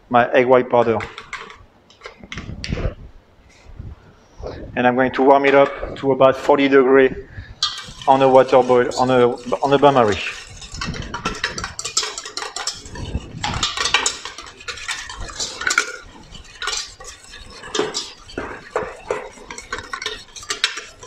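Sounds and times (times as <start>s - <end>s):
utensil scraping metal bowl: 0.9s - 2.3s, 5.2s - 6.8s, 7.6s - 21.0s.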